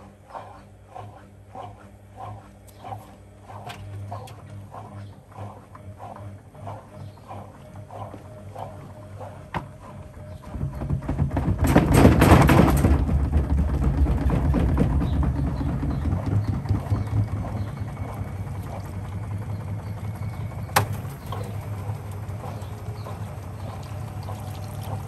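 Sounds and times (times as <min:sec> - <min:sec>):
washing machine drum rumbling: 0:09.4 - 0:25.0
drum rattling and banging: 0:10.4 - 0:21.8.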